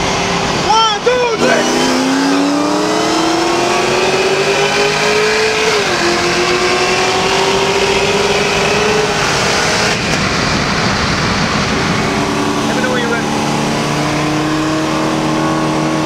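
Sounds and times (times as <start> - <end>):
cars accelerating hard: 0.0 - 16.0.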